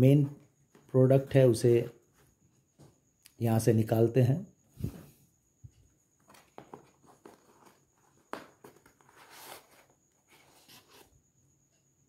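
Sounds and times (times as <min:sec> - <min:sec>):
fabric case rustle: 0:06.2 - 0:10.9.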